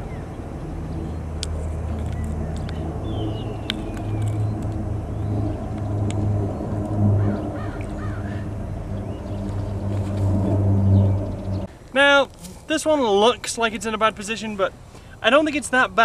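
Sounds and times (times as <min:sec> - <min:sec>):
engine-like hum: 0:00.0 - 0:11.9.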